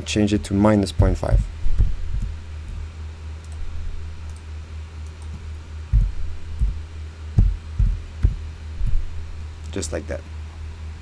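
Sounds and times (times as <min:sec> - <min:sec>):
low electrical hum: 0:00.0 - 0:11.0
dull low thumps: 0:00.9 - 0:02.9, 0:03.5 - 0:04.4, 0:05.3 - 0:09.6.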